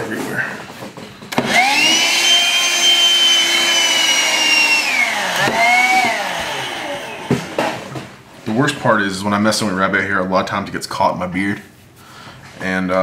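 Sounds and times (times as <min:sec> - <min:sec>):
handheld vacuum cleaner whine: 0:01.3 - 0:07.9.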